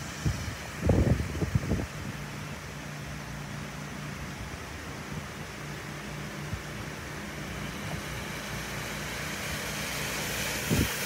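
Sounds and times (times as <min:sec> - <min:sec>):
tyres washing through water: 0:00.0 - 0:11.0.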